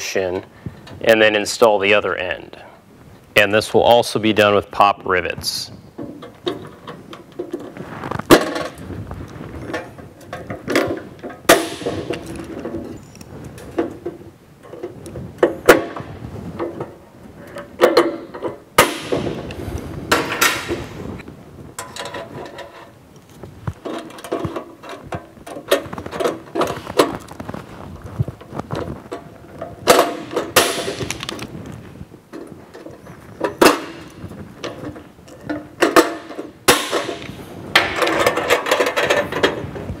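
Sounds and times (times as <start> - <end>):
metal clinks and rasps: 12.1 - 13.3.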